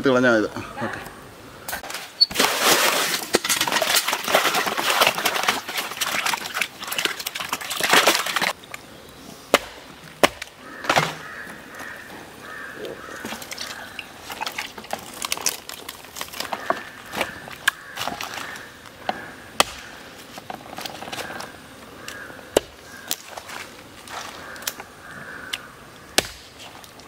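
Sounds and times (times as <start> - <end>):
water sloshing in a tub: 2.2 - 8.6.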